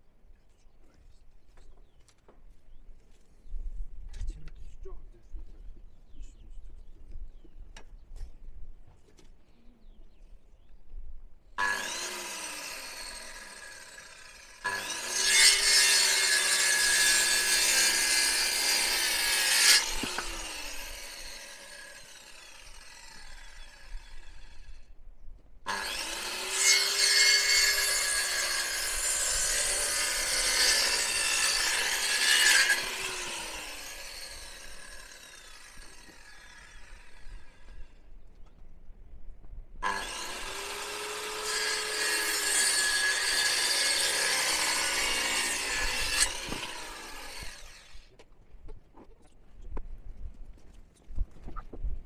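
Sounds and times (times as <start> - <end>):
electric saw cutting wood: 11.6 - 24.8, 25.7 - 37.8, 39.8 - 48.1.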